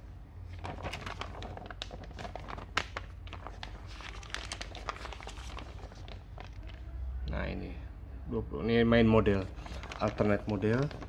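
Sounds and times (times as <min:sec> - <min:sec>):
paper pages rustling and crinkling: 0:00.5 - 0:06.9, 0:09.5 - 0:11.0.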